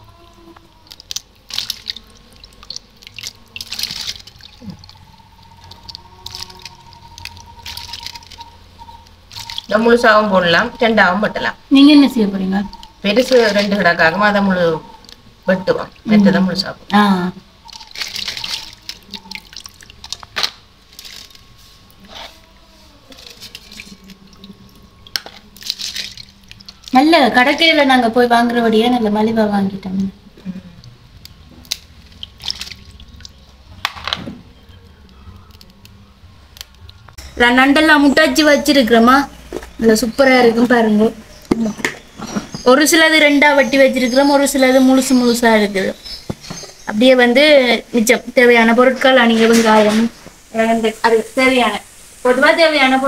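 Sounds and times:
water splashing: 0.0 - 27.9, 30.0 - 34.5
water sloshing in a metal basin: 0.0 - 30.1, 30.7 - 35.7
crab shells clicking: 0.2 - 9.7, 17.6 - 21.5, 30.8 - 37.2.

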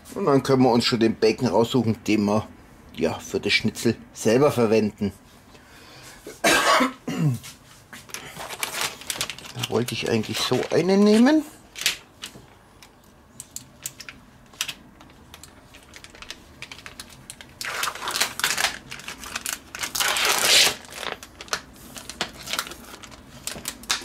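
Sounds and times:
plastic packaging crinkling: 8.1 - 12.4, 13.6 - 24.0
plastic film tearing: 8.4 - 12.0, 14.6 - 24.0.

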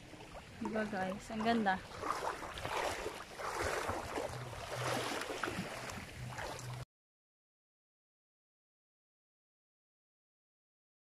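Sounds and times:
small waves lapping: 0.0 - 6.8.

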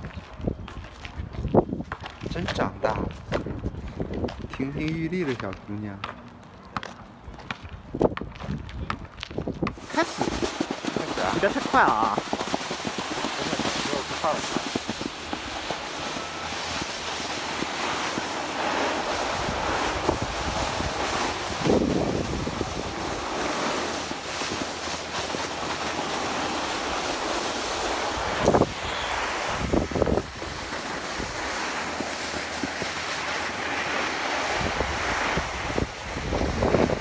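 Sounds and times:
wind rushing over microphone: 0.0 - 5.2, 7.2 - 37.0
skis hissing on packed snow: 9.8 - 37.0.

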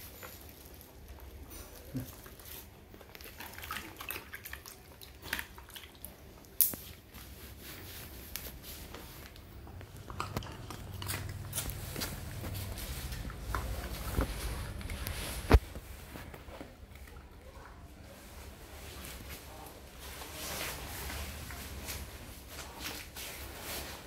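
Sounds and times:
dog chewing: 9.4 - 17.4.

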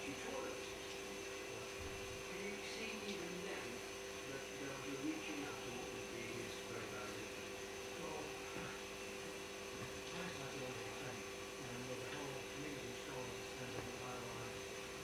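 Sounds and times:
electrical hum: 0.0 - 15.0
faint low murmur: 0.0 - 15.0.

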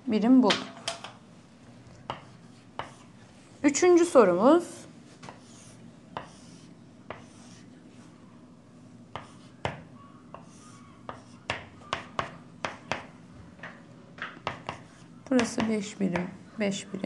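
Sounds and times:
chalk scraping on chalkboard: 2.1 - 3.1, 4.6 - 8.2, 9.1 - 9.7, 10.3 - 12.3, 14.5 - 15.2.

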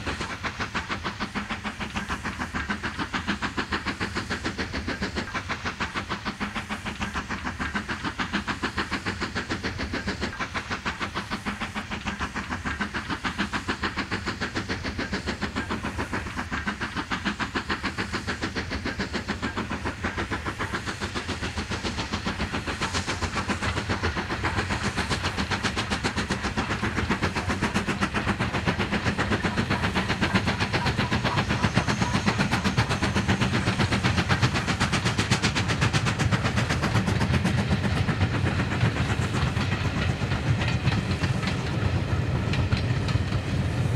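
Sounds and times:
steam hiss: 0.0 - 43.9
steam locomotive chuffing: 0.0 - 43.9.

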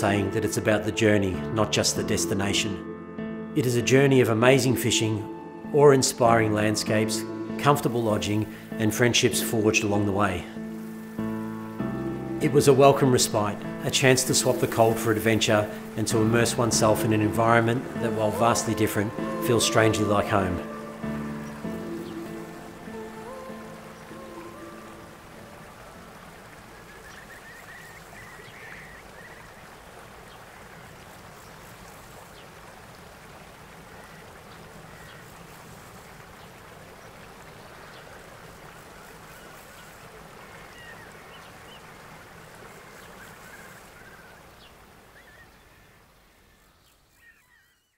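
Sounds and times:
flowing water: 4.6 - 47.2
faint bird calls: 20.6 - 31.6, 33.7 - 47.9.

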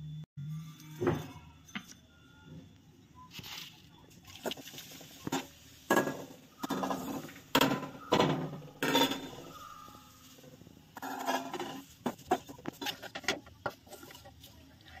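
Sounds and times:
kitchen dishes clattering: 5.2 - 9.7.

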